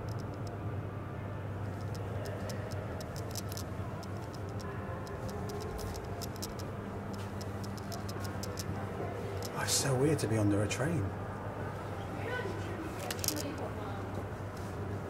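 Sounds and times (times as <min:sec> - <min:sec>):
light ticking clicks: 0:00.0 - 0:00.5, 0:01.7 - 0:08.7
steady low hum: 0:00.0 - 0:15.0.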